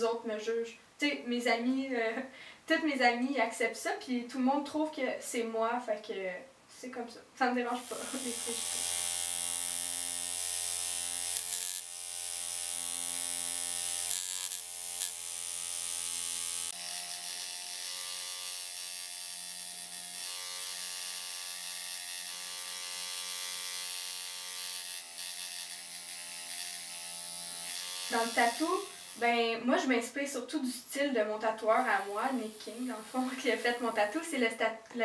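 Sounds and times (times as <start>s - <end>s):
tattoo machine buzzing: 7.8s - 29.4s, 31.7s - 34.3s.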